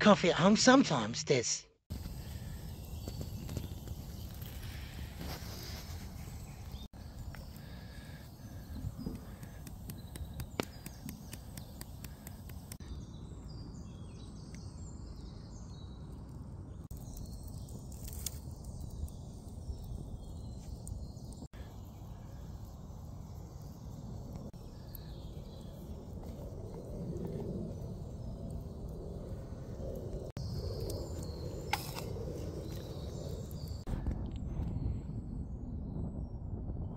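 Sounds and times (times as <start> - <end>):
campfire crackling and popping: 1.9 - 12.8, 16.9 - 34.1.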